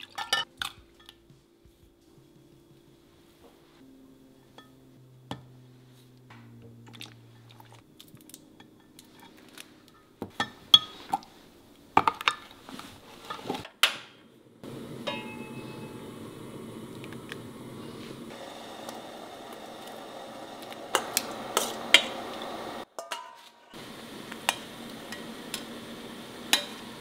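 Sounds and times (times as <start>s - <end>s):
pot hissing on stove: 14.6s - 22.9s, 23.7s - 27.0s
metal spoon clinking on glass: 15.1s - 15.9s.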